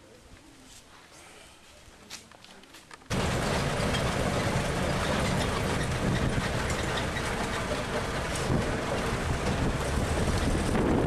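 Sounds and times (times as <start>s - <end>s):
road noise: 3.1s - 11.0s
tram engine rumble: 3.1s - 11.0s.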